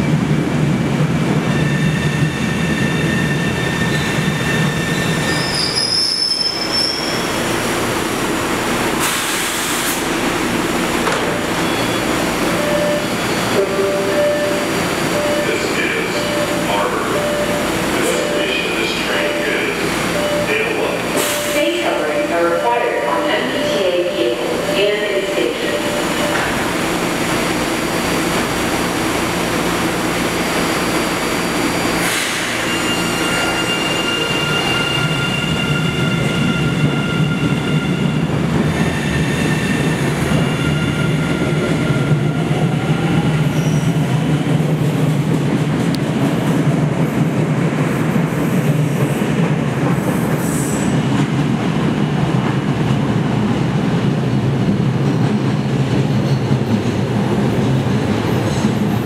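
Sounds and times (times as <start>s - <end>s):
train rumble pulling out: 0.0s - 22.4s, 23.0s - 59.0s
train doors closing clunk: 11.0s - 11.7s, 26.2s - 26.7s.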